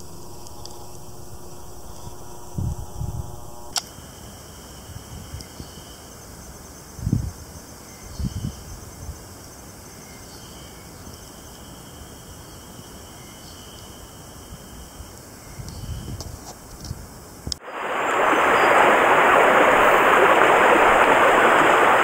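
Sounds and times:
cicadas chorus: 0:00.0 - 0:22.0
sharp click: 0:03.7 - 0:03.9.

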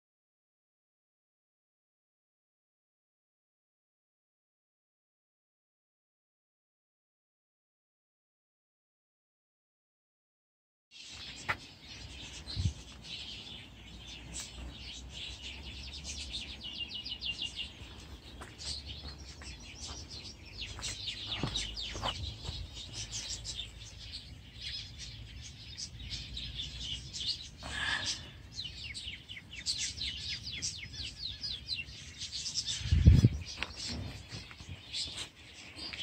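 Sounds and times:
small birds chirping: 0:10.9 - 0:36.0.

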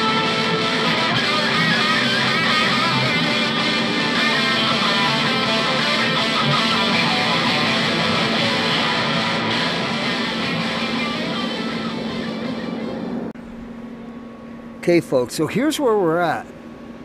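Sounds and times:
background music with electric guitar: 0:00.0 - 0:13.3.

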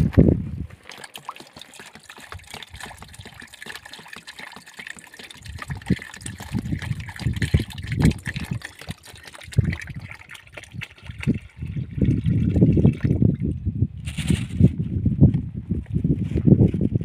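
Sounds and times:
small clicks and splashes: 0:00.8 - 0:11.6
water trickling: 0:00.8 - 0:13.6.

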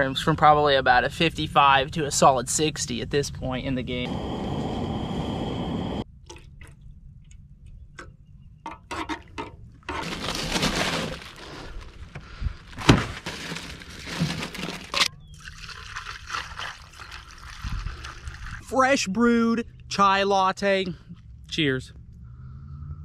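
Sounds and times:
gas camp stove hissing: 0:04.0 - 0:06.0
rummaging in a cooler: 0:09.9 - 0:15.1
tea pouring into a cup: 0:15.4 - 0:18.7.

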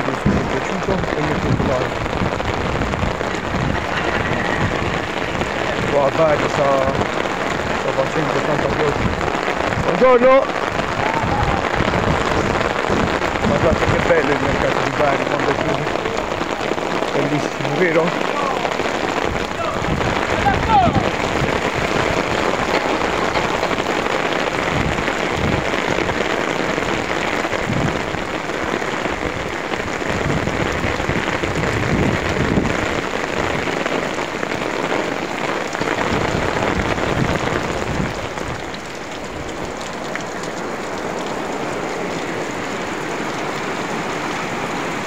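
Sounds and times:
low rumbles: 0:00.0 - 0:28.5
heavy rain on pavement: 0:00.0 - 0:45.0.

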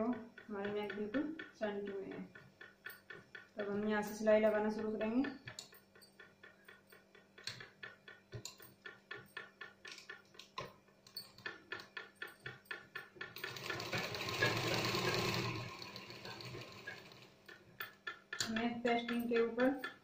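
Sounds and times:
sewing machine stitching: 0:13.2 - 0:17.5.

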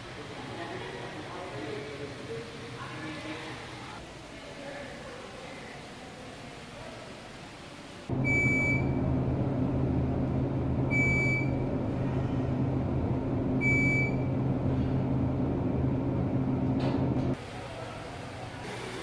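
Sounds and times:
elevator motor hum: 0:08.1 - 0:17.4.

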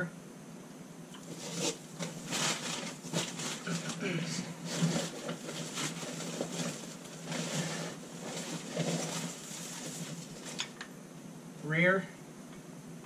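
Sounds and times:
packing paper rustling: 0:01.2 - 0:10.8.

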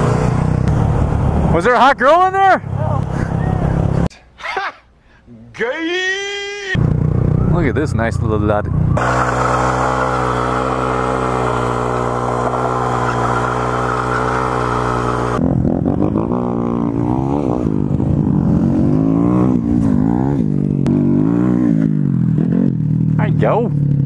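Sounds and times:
small motorcycle engine revving: 0:08.7 - 0:24.0.

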